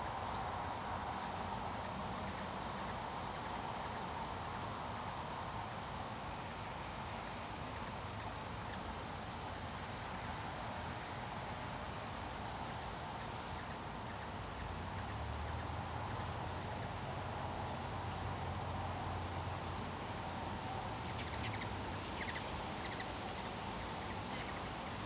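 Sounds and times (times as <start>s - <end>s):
distant traffic hum: 0.0s - 25.0s
bird chirping: 20.8s - 24.6s.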